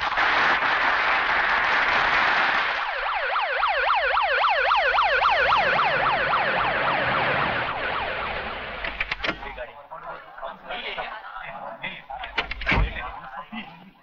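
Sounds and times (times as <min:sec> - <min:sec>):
crowd applauding: 0:00.0 - 0:04.0
warbling vehicle siren: 0:02.8 - 0:09.6.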